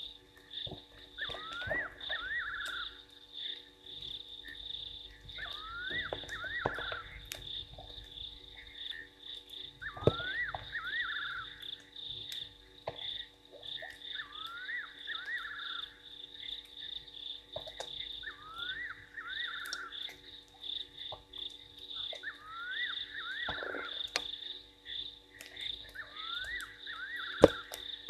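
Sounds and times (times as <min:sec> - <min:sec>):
frogs and insects chorus: 0:00.0 - 0:28.0
rising whistles and trill call: 0:01.2 - 0:03.1, 0:05.3 - 0:07.2, 0:09.7 - 0:11.8, 0:14.0 - 0:16.0, 0:18.2 - 0:20.0, 0:22.0 - 0:24.2, 0:25.9 - 0:27.9.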